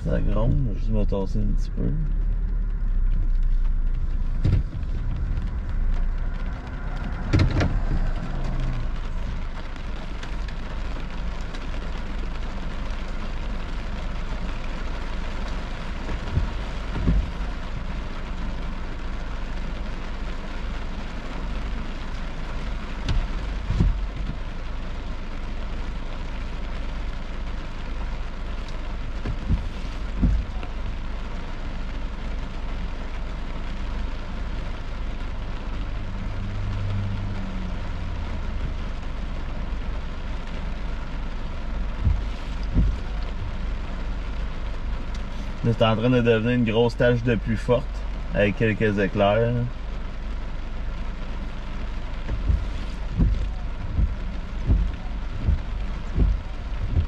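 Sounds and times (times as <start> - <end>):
car engine running low: 0.0 - 57.0
rain falling on a car: 0.0 - 57.0
short thumps: 4.2 - 5.5, 16.0 - 17.4, 23.0 - 24.4, 29.2 - 30.6, 41.9 - 43.4, 52.2 - 57.0.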